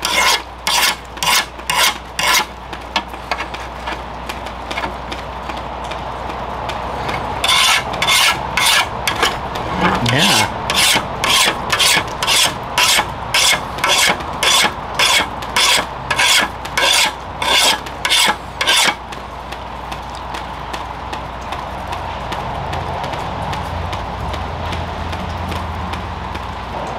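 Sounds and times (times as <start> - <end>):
file rasping on steel blade: 0.0 - 2.5, 7.1 - 19.0.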